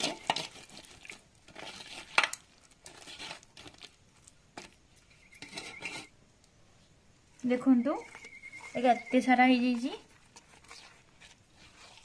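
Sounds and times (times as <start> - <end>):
fruit pulp squished through sieve: 0.0 - 6.1, 9.6 - 12.0.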